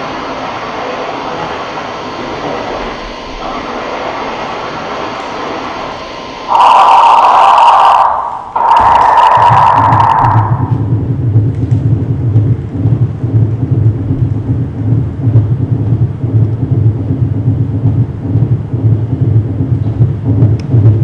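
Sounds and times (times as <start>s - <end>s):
loud low rumble: 6.4s - 21.0s.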